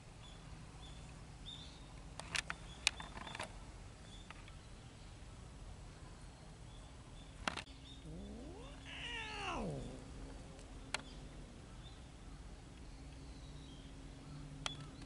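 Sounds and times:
cat meowing: 8.0s - 10.1s.

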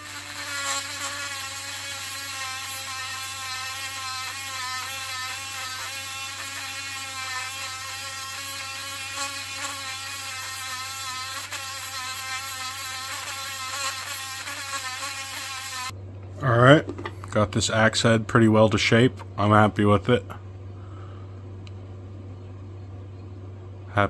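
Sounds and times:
rotary tool sanding metal: 0.0s - 15.9s.

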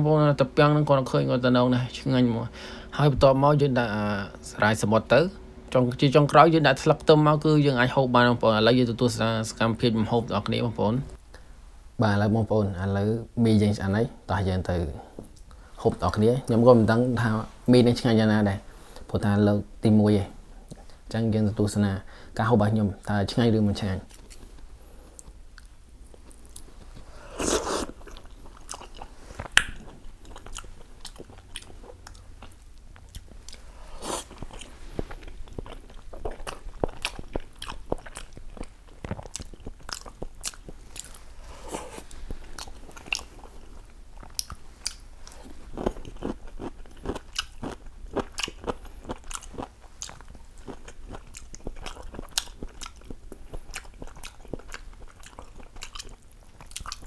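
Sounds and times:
wet mouth clicks and smacks: 29.4s - 29.8s.

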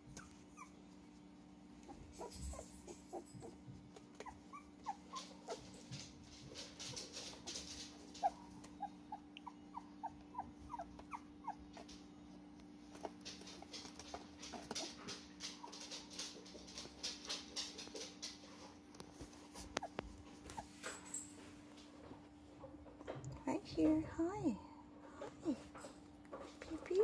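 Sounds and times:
paws scrabbling on foam: 0.0s - 22.8s
puppy whimpering: 0.1s - 0.8s, 1.8s - 5.9s, 8.0s - 12.1s, 19.6s - 20.8s.

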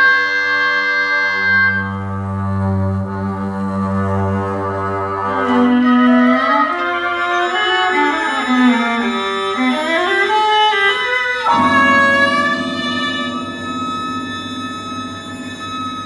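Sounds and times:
bowed strings sliding in pitch: 11.5s - 16.0s
low sustained chord: 11.5s - 16.0s.

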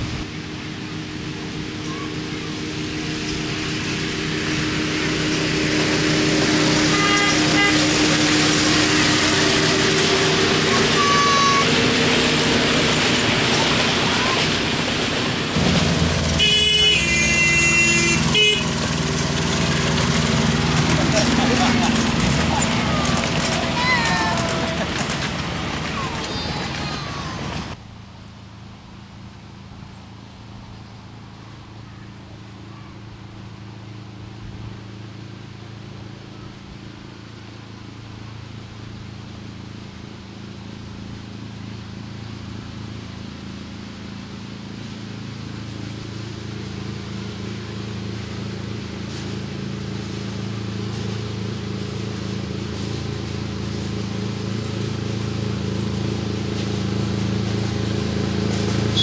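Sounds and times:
miniature locomotive engine humming: 0.0s - 59.0s.

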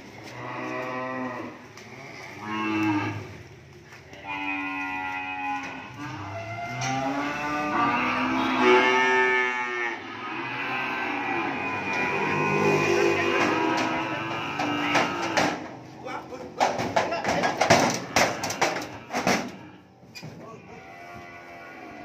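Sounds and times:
young cattle mooing: 0.3s - 3.4s, 4.1s - 15.7s, 20.7s - 22.0s.

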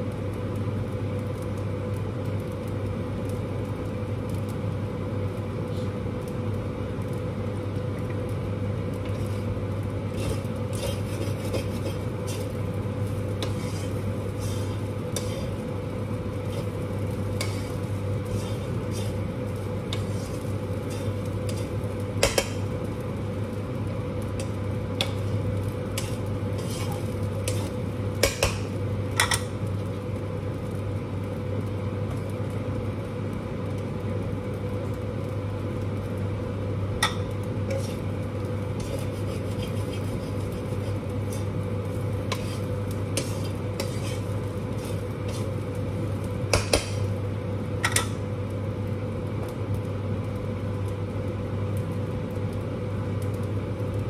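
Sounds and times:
steady hum: 0.0s - 54.0s
metal spatula scraping a wok: 9.0s - 15.7s, 16.4s - 22.5s, 26.0s - 29.4s, 37.1s - 38.1s, 38.7s - 45.6s.

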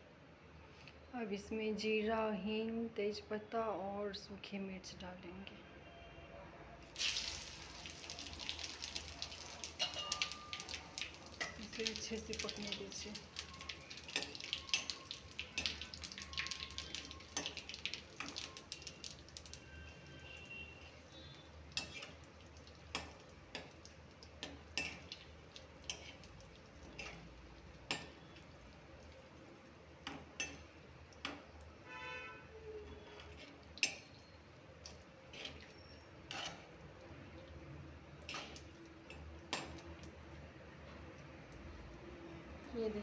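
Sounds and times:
spices crackling in hot oil: 6.8s - 43.0s
metal ladle scraping pan: 21.8s - 22.2s, 25.9s - 27.3s, 35.3s - 36.8s.

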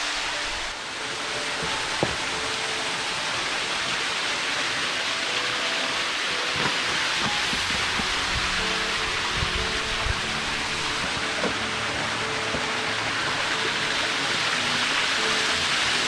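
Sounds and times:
small waterfall splashing over rock: 0.0s - 16.0s.

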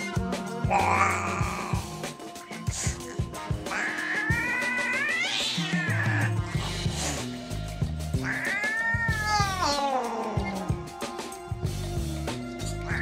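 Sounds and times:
background music: 0.0s - 13.0s
cat yowling: 0.7s - 2.0s, 2.8s - 6.6s, 8.2s - 11.0s.

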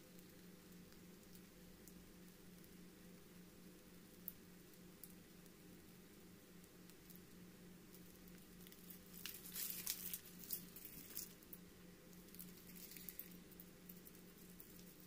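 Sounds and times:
steady low hum: 0.0s - 15.0s
plastic bag and gloves crinkling: 8.6s - 11.6s, 12.2s - 15.0s.

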